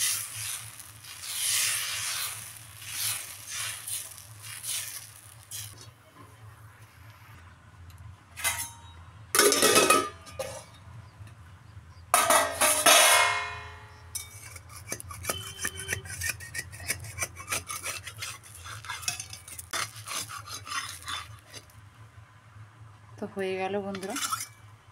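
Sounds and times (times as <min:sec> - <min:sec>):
steel spatula scraping pan: 0:00.0 - 0:05.8, 0:14.2 - 0:21.7, 0:24.0 - 0:24.6
metal lid clanking on pan: 0:09.4 - 0:10.7, 0:12.2 - 0:14.3.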